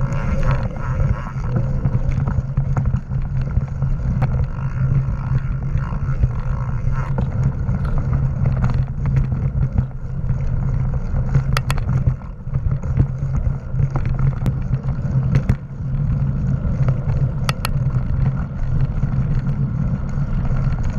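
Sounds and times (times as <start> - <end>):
bike knocks and rattles: 0.0 - 20.9
wind and tyres rumbling: 0.0 - 20.9.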